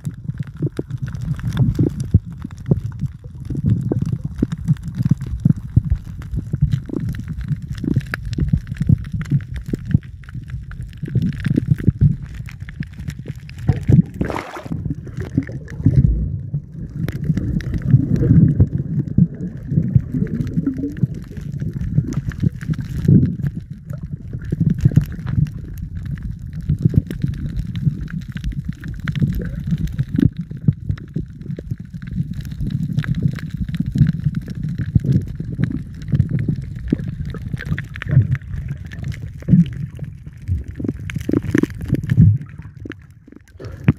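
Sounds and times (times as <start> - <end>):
underwater gurgling rumble: 0.0 - 43.9
water rushing: 13.6 - 21.4.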